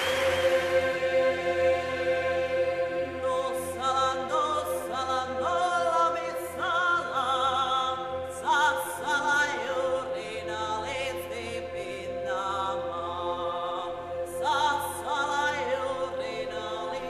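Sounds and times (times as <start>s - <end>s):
steady drone: 0.0s - 12.0s
choir singing: 0.0s - 17.0s.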